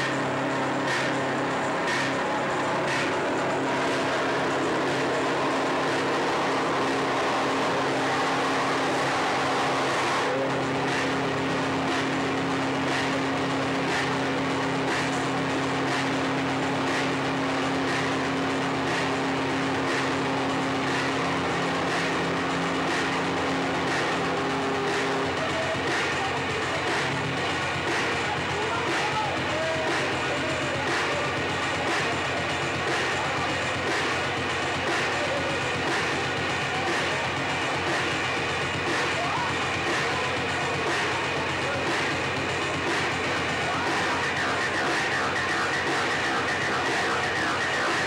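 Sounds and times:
electronic noise music: 0:00.0 - 0:48.0
low droning tones: 0:00.0 - 0:48.0.

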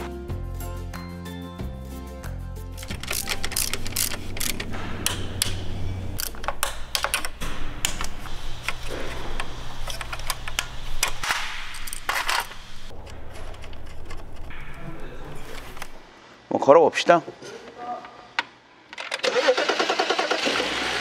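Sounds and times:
metal parts clinking: 0:02.7 - 0:16.0
socket ratchet clicking: 0:02.8 - 0:05.6, 0:06.2 - 0:12.5.

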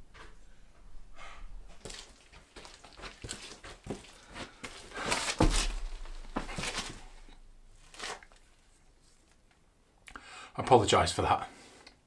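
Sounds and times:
rustling and handling: 0:01.7 - 0:09.7
heavy thud: 0:05.2 - 0:07.8.

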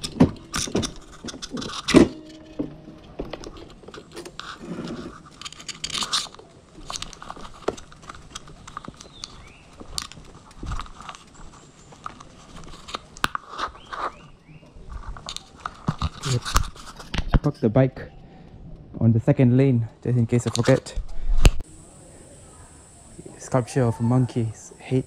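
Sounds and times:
clicks and scrapes on scooter: 0:00.0 - 0:17.7.

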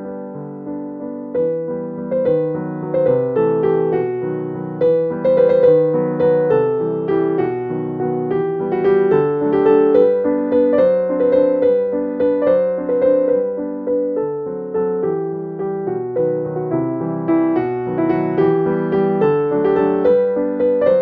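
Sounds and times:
gentle piano music: 0:00.0 - 0:21.0.

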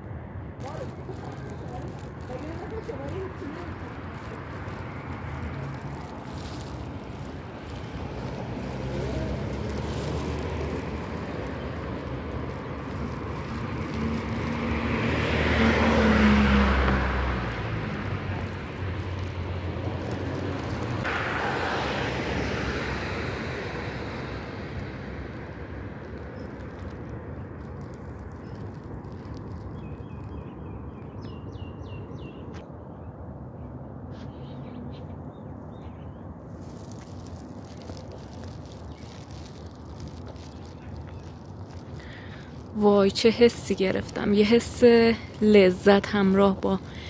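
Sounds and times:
vehicles passing on road: 0:00.0 - 0:47.0.

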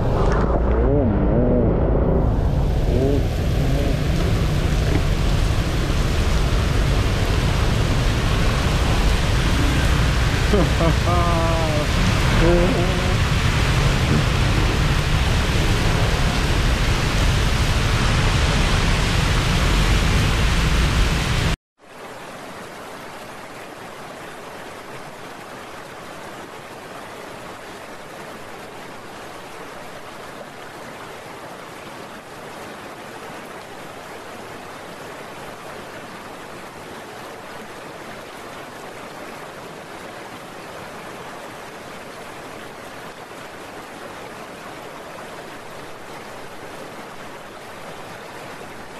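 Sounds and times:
heavy rain rushing: 0:00.0 - 0:21.6.

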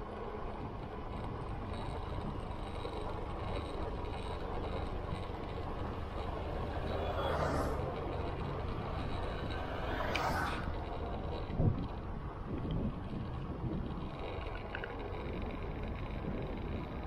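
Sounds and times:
motorcycle engine rumble: 0:00.0 - 0:17.0
wind and road noise: 0:00.0 - 0:17.0.

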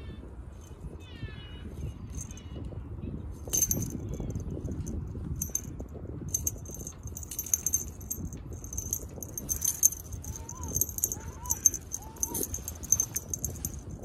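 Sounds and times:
cat toy jingling: 0:01.9 - 0:02.5, 0:03.4 - 0:14.0.

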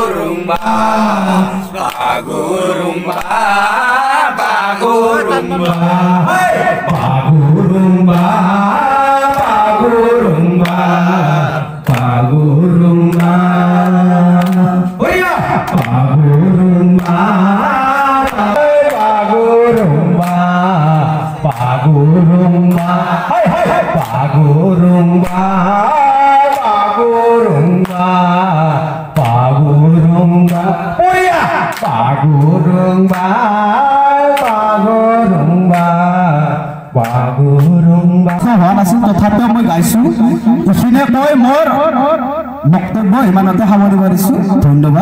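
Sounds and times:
men singing together: 0:00.0 - 0:42.8
sharp hand claps: 0:01.8 - 0:02.2, 0:03.1 - 0:03.4, 0:05.6 - 0:07.2, 0:08.1 - 0:08.4, 0:09.2 - 0:09.7, 0:10.6 - 0:10.9, 0:11.8 - 0:20.5, 0:21.4 - 0:21.8, 0:22.6 - 0:24.3, 0:25.2 - 0:26.8, 0:27.8 - 0:28.1, 0:29.2 - 0:29.5, 0:30.4 - 0:33.4, 0:34.3 - 0:34.7, 0:35.7 - 0:36.0, 0:37.0 - 0:38.5.

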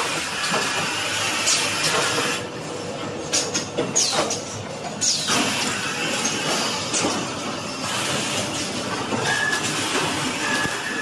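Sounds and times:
machinery clattering: 0:00.0 - 0:11.0.

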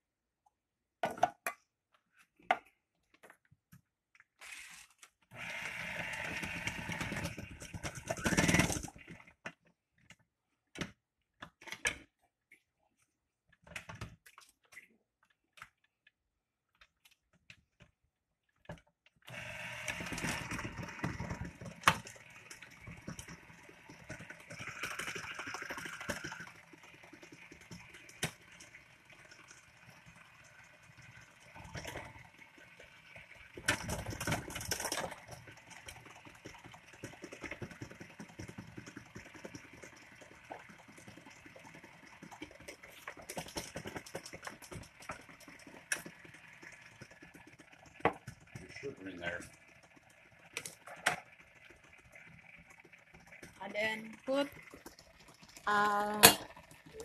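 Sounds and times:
stand mixer motor running: 0:05.3 - 0:09.0, 0:19.3 - 0:54.9.

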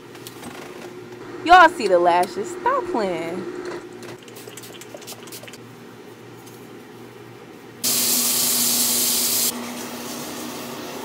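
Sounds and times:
sink tap running: 0:03.9 - 0:05.6, 0:07.8 - 0:09.5.

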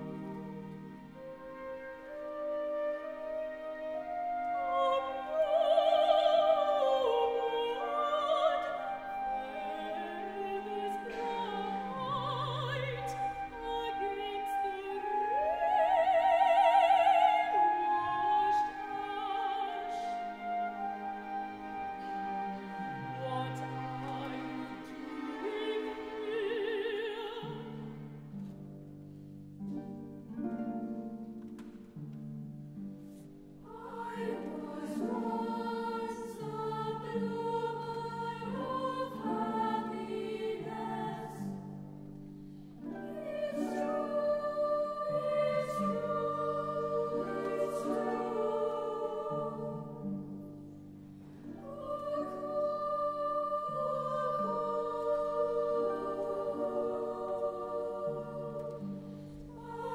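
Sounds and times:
orchestral music: 0:00.0 - 0:31.8
harp: 0:00.0 - 0:59.9
boys' choir singing: 0:33.7 - 0:41.5, 0:43.2 - 0:49.9, 0:51.6 - 0:59.9.

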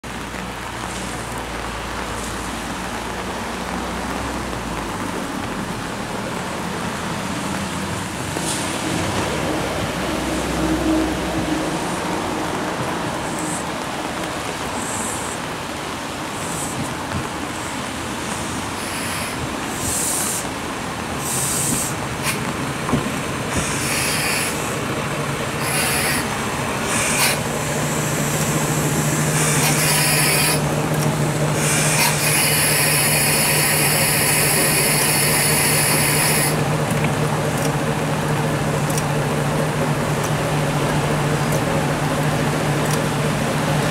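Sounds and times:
diesel engine idling: 0:00.0 - 0:43.9
train brakes squealing: 0:18.8 - 0:20.4, 0:23.6 - 0:24.8, 0:25.6 - 0:26.3, 0:28.8 - 0:30.6, 0:31.6 - 0:36.6.

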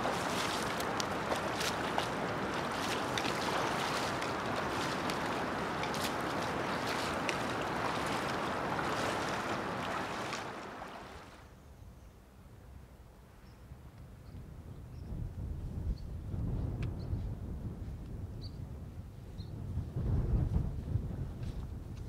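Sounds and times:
river water rushing and splashing: 0:00.0 - 0:11.4.

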